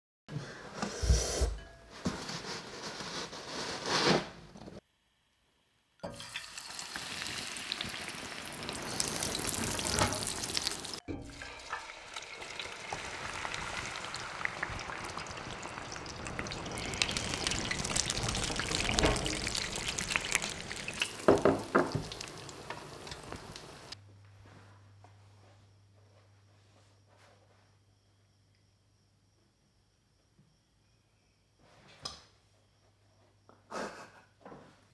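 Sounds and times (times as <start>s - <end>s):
sizzling and popping in saucepan: 6.0s - 24.0s.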